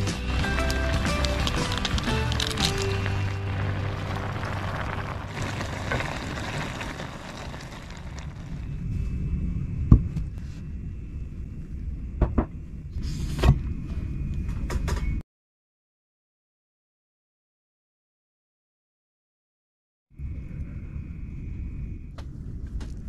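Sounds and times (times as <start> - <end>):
broth boiling with a hiss: 0.0 - 9.0
low rumble: 0.0 - 14.9, 20.2 - 23.0.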